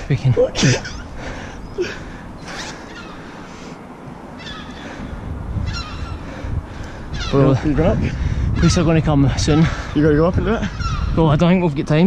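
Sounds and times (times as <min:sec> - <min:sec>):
wind rumbling on camera: 0:00.0 - 0:12.0
faint bird calls: 0:00.8 - 0:07.8, 0:09.4 - 0:11.3.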